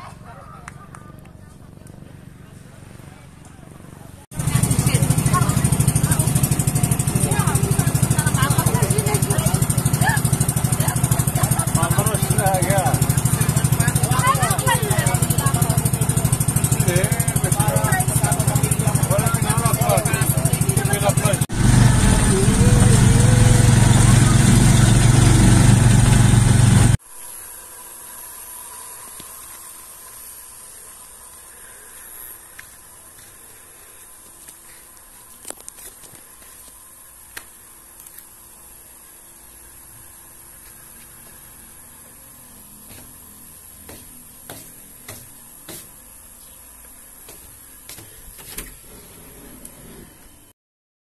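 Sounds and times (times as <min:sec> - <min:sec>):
vehicle engine running loudly: 0:04.3 - 0:27.0
steady hiss: 0:27.0 - 0:49.3
footsteps on wooden floorboards: 0:42.8 - 0:43.2, 0:43.8 - 0:46.0, 0:47.2 - 0:48.7.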